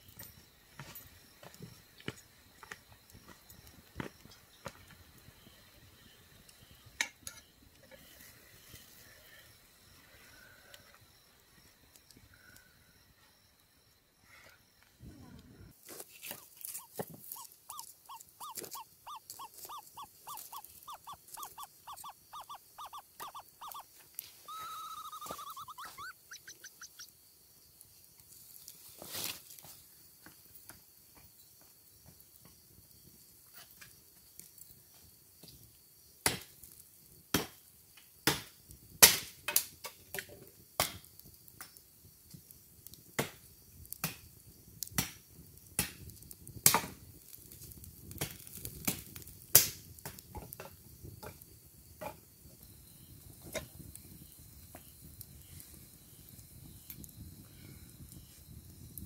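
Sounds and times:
campfire wood crackling: 0:15.7 - 0:29.6, 0:36.2 - 0:59.0
wavering animal call: 0:16.4 - 0:27.1
animal short high calls: 0:16.7 - 0:27.0
sharp fire pops: 0:38.2 - 0:40.0, 0:42.9 - 0:51.4.

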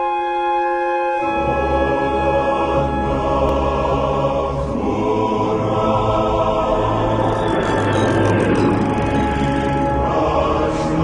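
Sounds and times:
choir singing sustained chords: 0:00.0 - 0:11.0
deep low drone: 0:03.5 - 0:11.0.

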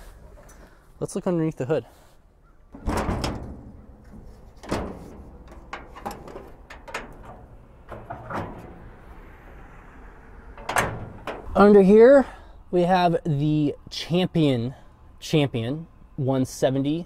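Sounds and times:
metal bang on truck body: 0:02.8 - 0:03.9, 0:04.6 - 0:09.2, 0:10.6 - 0:11.6.

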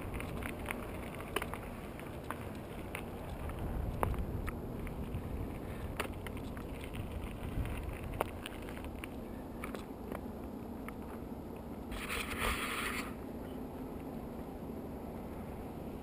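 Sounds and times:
bike clicks and rattles: 0:00.0 - 0:11.2
tyres rumbling on asphalt: 0:00.0 - 0:16.0
wind on microphone: 0:03.0 - 0:08.7.

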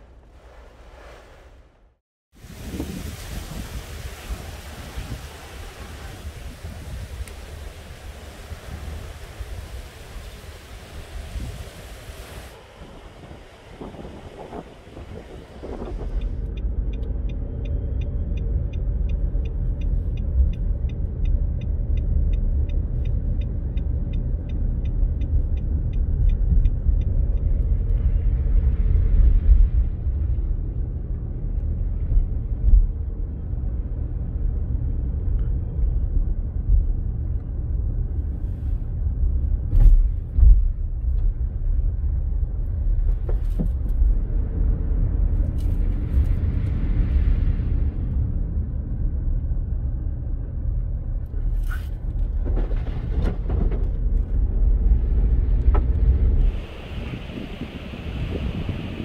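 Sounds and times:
hurricane wind rumbling: 0:00.0 - 0:16.5, 0:24.6 - 0:51.4, 0:52.0 - 0:59.0
light ticking: 0:16.1 - 0:28.0.

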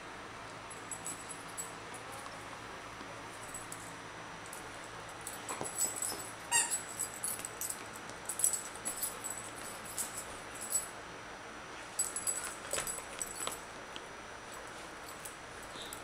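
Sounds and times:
squeak toy squeaking: 0:06.5 - 0:06.8.

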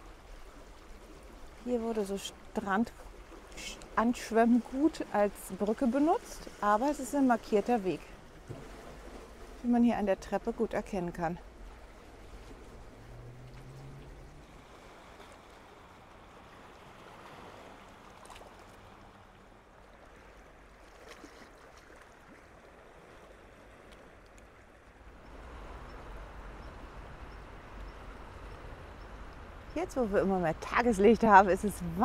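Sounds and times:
waves lapping on rocks: 0:00.0 - 0:32.0
low rumble: 0:11.7 - 0:14.6.

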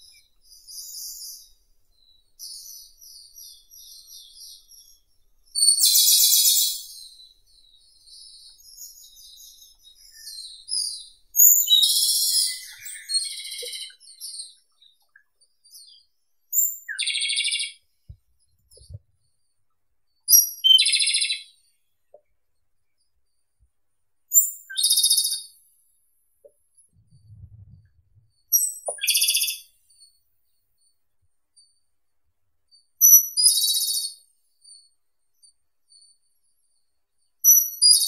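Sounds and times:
bird singing trills: 0:00.0 - 0:17.9, 0:20.2 - 0:21.8, 0:24.3 - 0:25.6, 0:27.0 - 0:30.2, 0:33.0 - 0:36.2, 0:37.4 - 0:38.0
faint bird twittering: 0:00.0 - 0:22.2, 0:26.7 - 0:30.2.

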